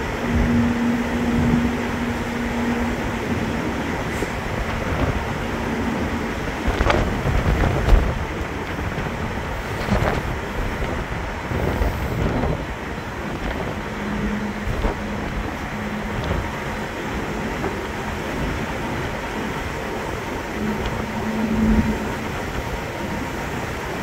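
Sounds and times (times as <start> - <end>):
ferry machinery rumble: 0.0 - 24.0
wind buffeting microphone: 0.0 - 24.0.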